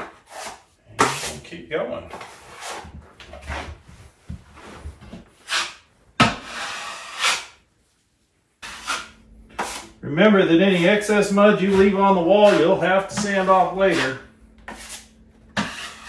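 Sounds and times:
taping knife scraping joint compound: 0.0s - 1.4s, 2.1s - 3.7s, 5.4s - 7.6s, 8.6s - 10.0s, 12.4s - 16.0s.

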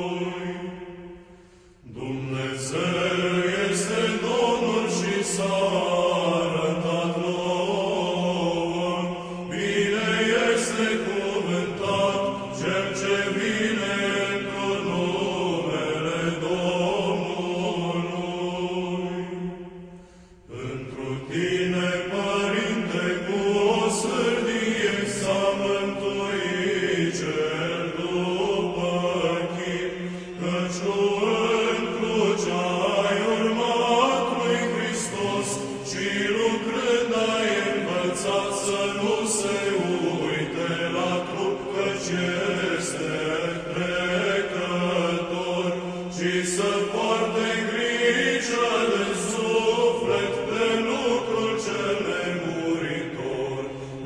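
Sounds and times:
person chanting: 0.0s - 54.0s.

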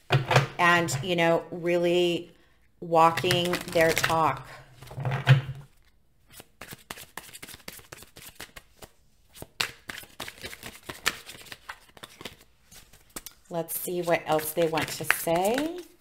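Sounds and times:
cards being shuffled: 3.2s - 4.2s, 5.7s - 16.0s.

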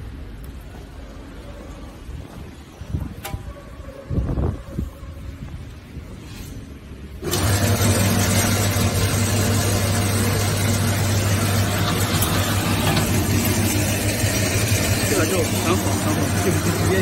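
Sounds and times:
wire stripping machine humming: 7.2s - 17.0s.

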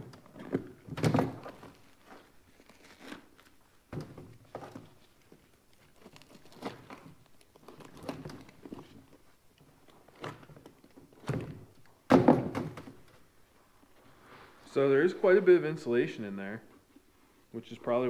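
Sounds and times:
heavy thunk: 12.1s - 12.8s.

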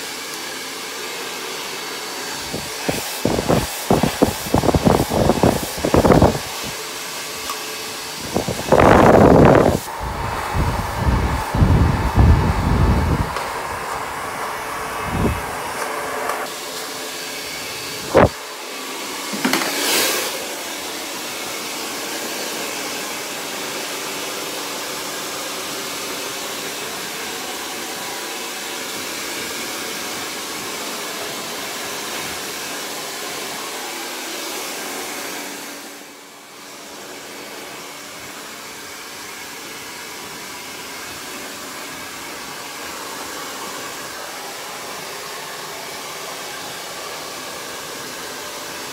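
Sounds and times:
hair dryer blowing: 0.0s - 48.9s.

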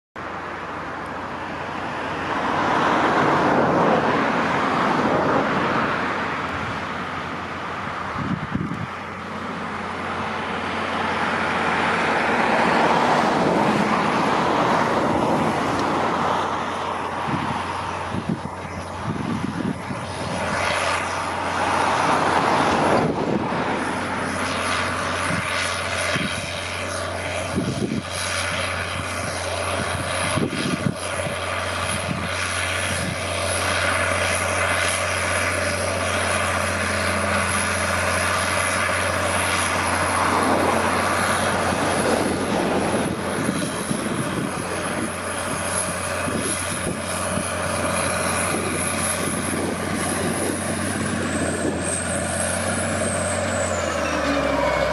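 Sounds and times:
diesel tractor engine under load: 0.2s - 54.9s
knocks from tracks and cultivator: 23.8s - 54.9s.

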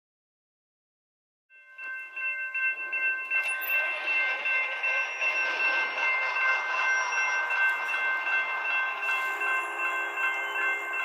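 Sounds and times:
crossing bell ringing: 1.5s - 11.0s
approaching train rushing: 2.7s - 11.0s.

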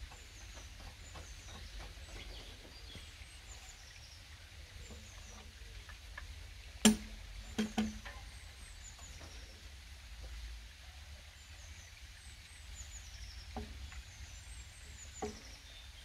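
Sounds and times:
small birds chirping: 0.0s - 6.8s, 11.4s - 16.0s
log knocking: 6.8s - 8.2s, 13.5s - 14.1s, 15.2s - 15.6s.

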